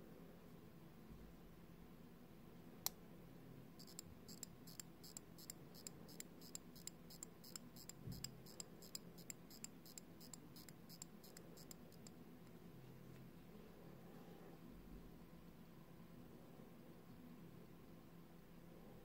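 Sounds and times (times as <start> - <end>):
watch crown ratchet clicks: 3.8 - 12.1.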